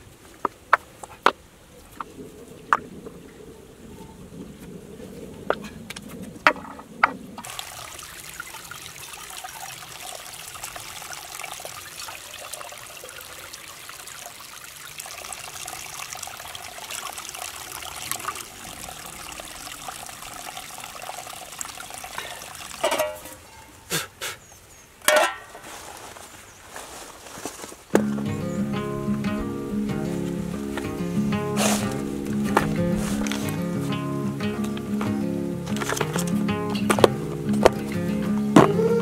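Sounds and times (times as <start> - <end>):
water trickling: 1.9 - 23.8, 28.0 - 39.0
stones clacking: 5.5 - 7.5, 31.9 - 38.9
metal pan clanking: 22.8 - 23.6, 25.0 - 25.6.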